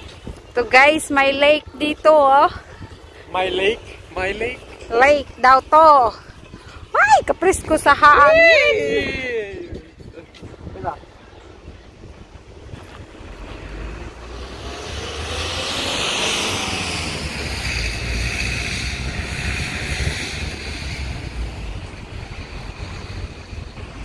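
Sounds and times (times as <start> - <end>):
wind buffeting microphone: 0.0 - 24.0
passing vehicle rushing: 13.0 - 24.0.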